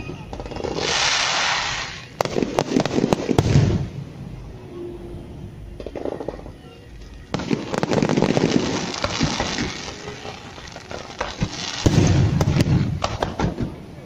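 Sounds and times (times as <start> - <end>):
fireworks bangs: 0.0 - 4.4, 5.7 - 14.0
fireworks crackling: 0.0 - 4.7, 5.4 - 14.0
fireworks pops: 7.3 - 13.8.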